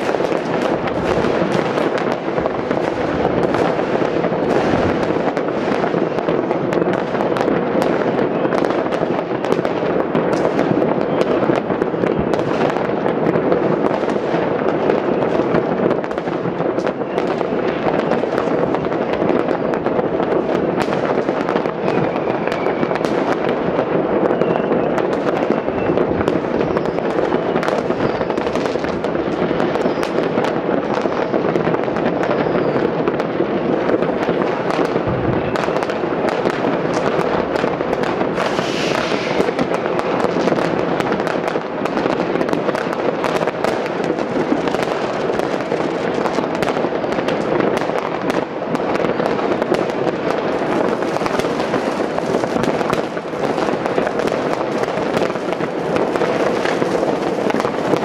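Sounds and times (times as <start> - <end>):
firecrackers crackling and banging: 0.0 - 58.0
rocket whistles: 21.9 - 23.0, 24.2 - 26.0, 26.6 - 28.6, 29.8 - 30.2, 32.2 - 33.0, 38.3 - 39.9
deep firework bang: 34.8 - 40.6.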